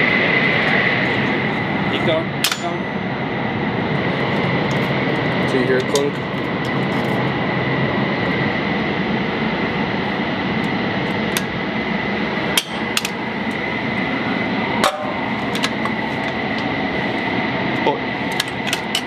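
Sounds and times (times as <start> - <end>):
high whine: 0.0 - 19.0
steady machinery noise: 0.0 - 19.0
metal clicks and clanks: 18.3 - 19.0.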